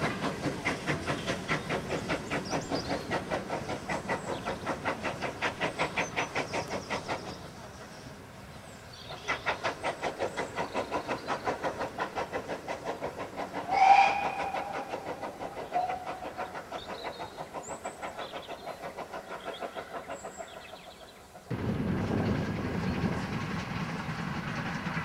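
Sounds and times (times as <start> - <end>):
steam locomotive exhaust chuffs: 0.0 - 25.0
locomotive whistle blast: 13.7 - 14.8.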